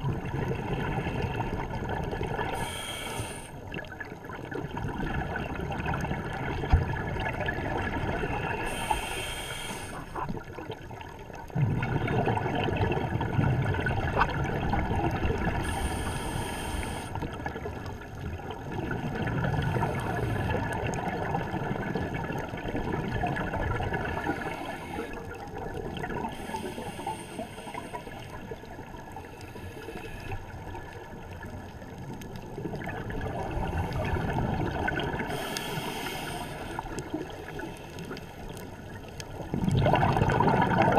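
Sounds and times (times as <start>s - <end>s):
exhaled bubbles rumbling: 0.0s - 2.9s, 3.7s - 8.9s, 10.0s - 26.5s, 30.5s - 40.9s
regulator inhalation hisses: 2.5s - 3.6s, 8.6s - 10.2s, 15.6s - 17.2s, 26.3s - 28.4s, 35.3s - 37.0s.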